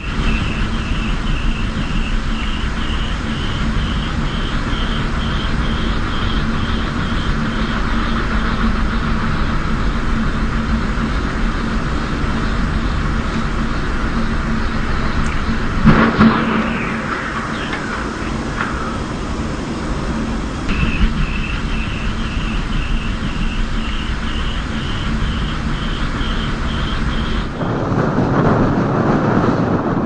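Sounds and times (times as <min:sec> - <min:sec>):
pulsing high whine: 0:00.0 - 0:30.0
strong wind roaring: 0:00.0 - 0:30.0
wind turbine rotor noise: 0:00.0 - 0:30.0.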